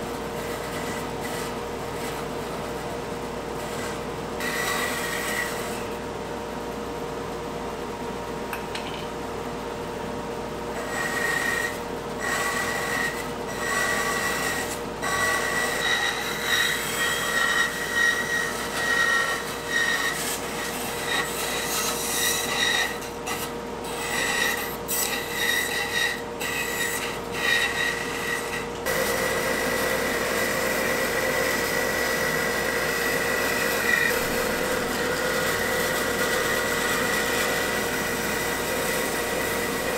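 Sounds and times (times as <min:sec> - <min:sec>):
bandsaw cutting wood: 0:10.8 - 0:39.9.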